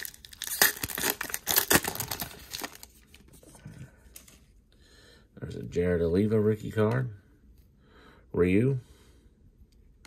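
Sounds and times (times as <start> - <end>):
foil wrapper tearing and crinkling: 0.0 - 3.0.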